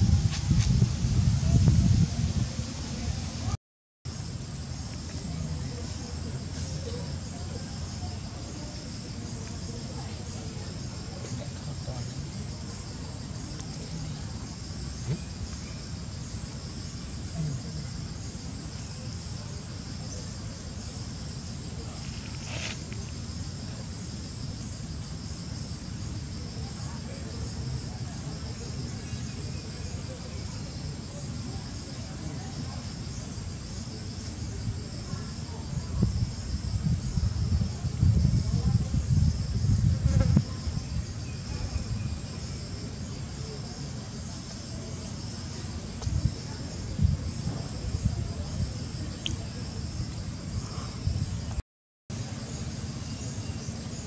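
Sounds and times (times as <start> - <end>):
insects chirping: 0.0 - 54.0
short rustle: 22.0 - 23.2.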